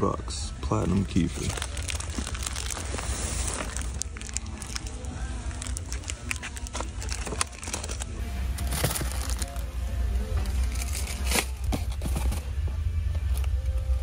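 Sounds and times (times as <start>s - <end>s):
packaging crinkling and rustling: 0.8s - 9.7s.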